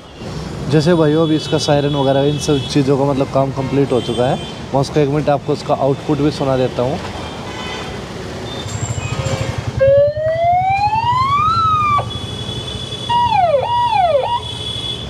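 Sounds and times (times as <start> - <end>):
electronic siren: 9.8 - 12.2, 13.1 - 14.5.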